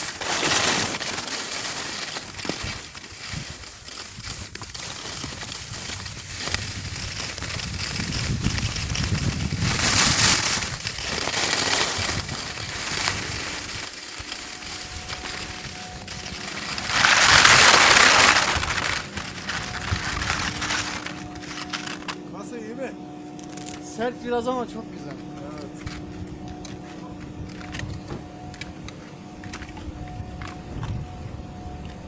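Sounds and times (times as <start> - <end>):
skis scraping over crusty snow: 0.0 - 22.8.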